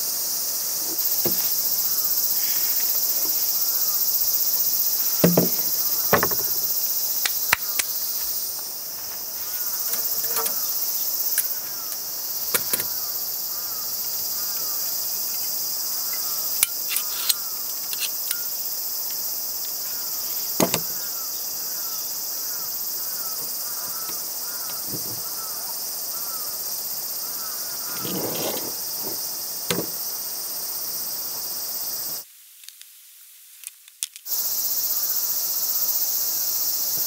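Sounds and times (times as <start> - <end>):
high-pitched insect chorus: 0.0 - 32.4, 34.2 - 37.0
knocks of wood and metal clamp: 1.0 - 1.7, 5.1 - 6.8, 20.5 - 21.0, 29.0 - 30.0.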